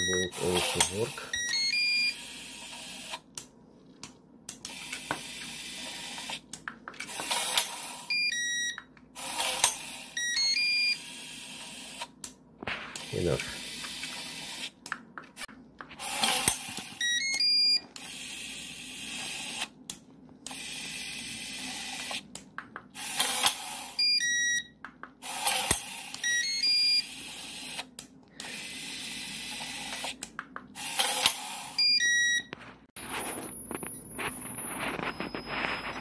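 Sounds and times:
small electric motors whirring: 23.0s - 24.0s, 27.0s - 31.8s
stepped electronic beeps: 31.8s - 36.0s.

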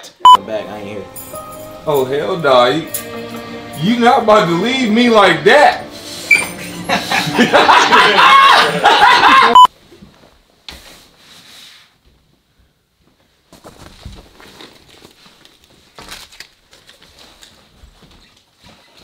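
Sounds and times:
clothing rustling: 13.2s - 19.0s.

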